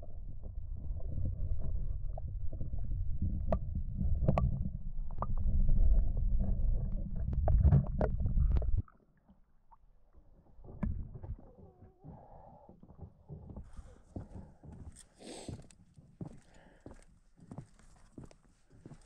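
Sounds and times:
underwater rumble of water: 0.0 - 13.9.

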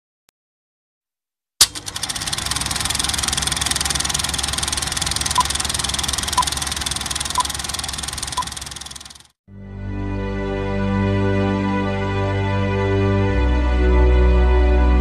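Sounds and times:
projector switch click: 1.6 - 2.0
film projector clattering: 1.6 - 9.4.

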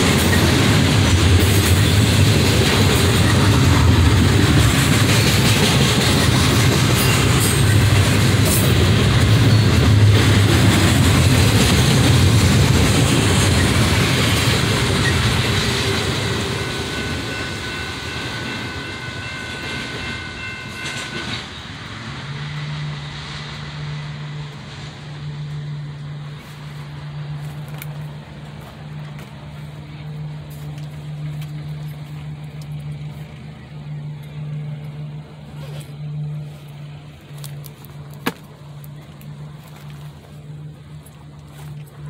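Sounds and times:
low engine hum: 21.8 - 42.0.

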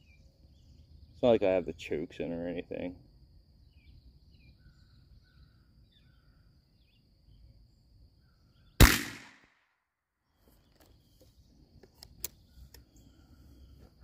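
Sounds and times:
gunshot: 8.8 - 9.6.

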